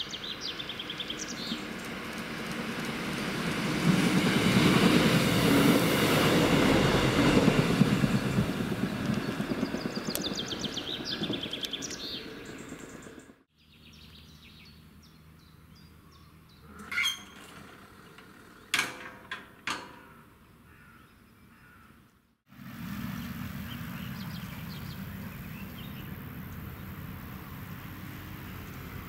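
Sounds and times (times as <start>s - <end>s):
birds chirping: 0.0s - 2.3s, 7.9s - 18.8s, 20.0s - 22.3s, 23.0s - 29.0s
train rumble: 0.0s - 13.5s.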